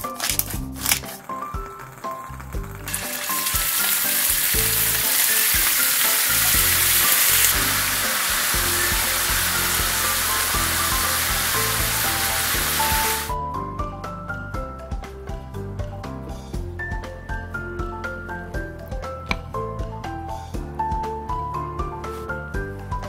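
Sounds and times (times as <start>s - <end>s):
light background music: 0.0s - 23.0s
meat sizzling in hot oil: 1.0s - 13.4s.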